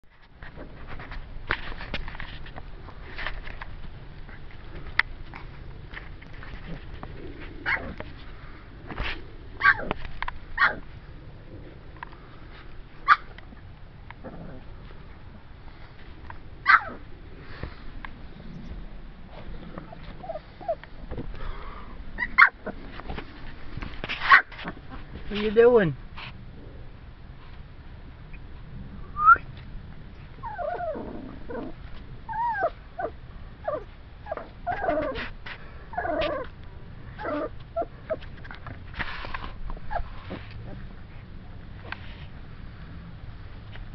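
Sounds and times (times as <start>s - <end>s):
puppies yipping: 9.6s - 10.0s, 13.0s - 13.3s, 16.6s - 17.0s, 19.8s - 20.9s, 22.2s - 22.8s, 30.4s - 35.2s, 37.2s - 38.2s, 39.8s - 40.9s.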